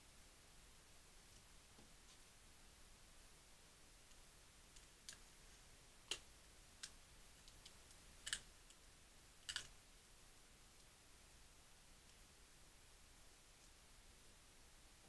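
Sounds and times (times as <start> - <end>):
small objects clicking in hands: 9.4 - 9.7.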